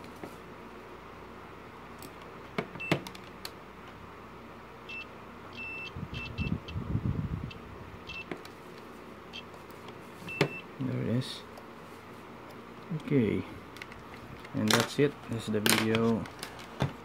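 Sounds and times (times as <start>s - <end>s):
multimeter short beeps: 4.9s - 6.8s.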